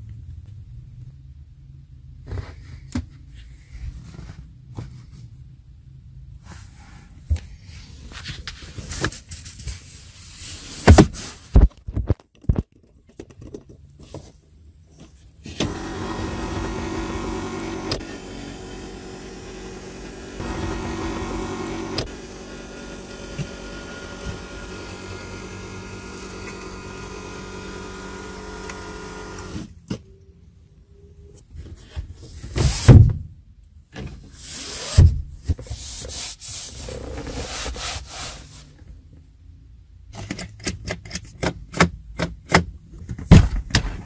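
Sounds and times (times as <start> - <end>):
electric motor whirring: 15.6 - 29.6.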